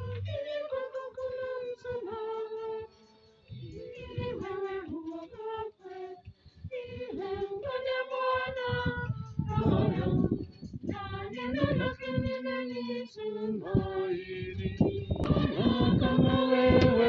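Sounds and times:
high voices singing a hymn: 0.0 - 17.0.

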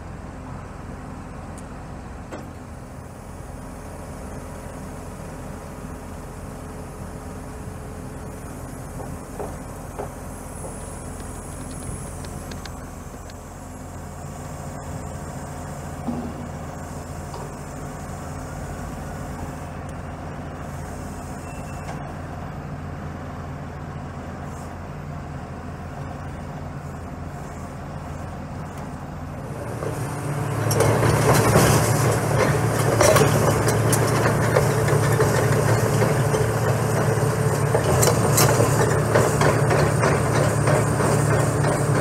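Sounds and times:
diesel engine idling and revving: 0.0 - 42.0
steel tracks clanking on concrete: 8.6 - 12.7, 16.0 - 16.6, 29.4 - 42.0.

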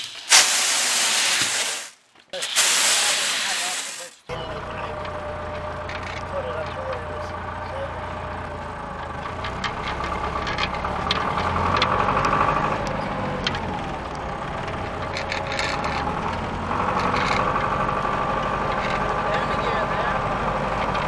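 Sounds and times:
tractor engine running: 2.4 - 21.0
short rattles and clicks: 5.8 - 7.1, 9.0 - 19.3.

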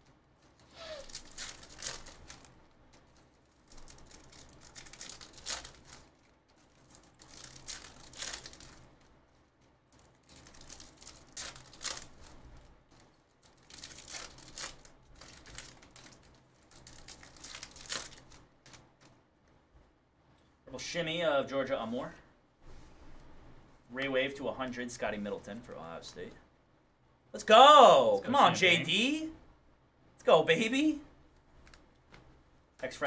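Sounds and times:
card wrappers crinkling and tearing: 0.4 - 19.1.

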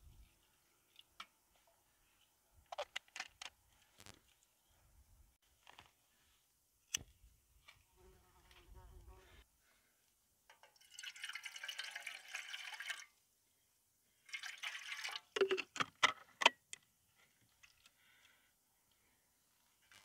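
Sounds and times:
water pouring into a pot: 10.6 - 13.2, 14.2 - 15.4.

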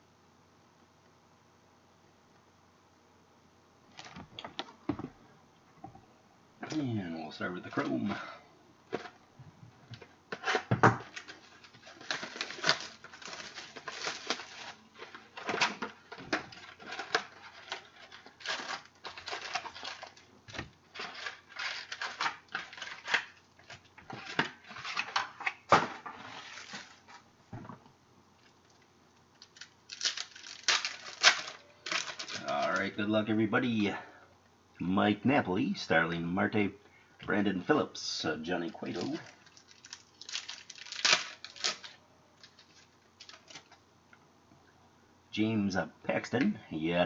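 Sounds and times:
foil packs crinkling and rustling: 9.9 - 27.2, 28.4 - 33.1, 38.4 - 43.8.

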